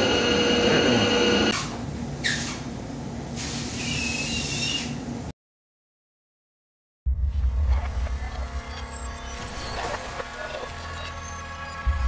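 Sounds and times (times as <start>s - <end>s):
mechanical whine: 0.0s - 1.6s, 7.1s - 12.0s
brief squeal: 3.8s - 5.0s.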